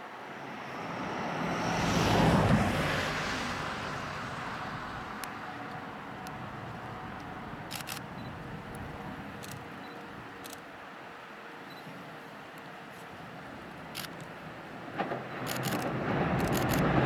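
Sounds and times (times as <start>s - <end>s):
vehicle passing by: 0.4s - 7.6s.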